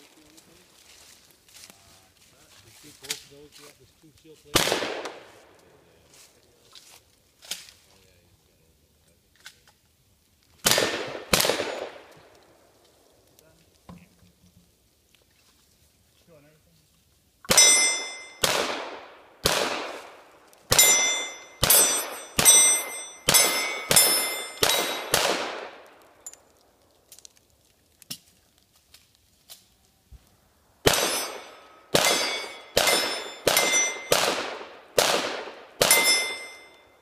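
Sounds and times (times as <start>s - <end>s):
gunshots: 4.5s - 5.4s, 10.6s - 12.1s, 17.5s - 26.0s, 30.8s - 36.7s
steel plate ringing: 17.5s - 18.4s, 20.7s - 25.1s, 30.9s - 34.2s, 35.8s - 37.0s.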